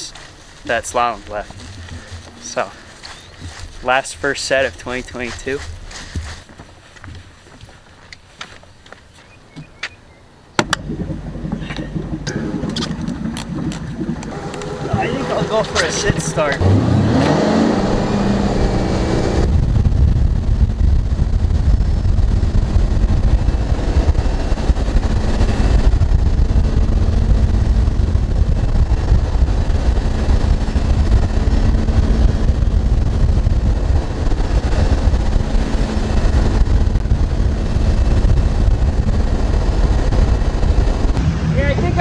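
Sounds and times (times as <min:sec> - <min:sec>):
boat engine running: 0:00.0 - 0:07.2, 0:10.5 - 0:42.0
wind buffeting microphone: 0:00.0 - 0:42.0
water rushing past hull: 0:10.6 - 0:19.5.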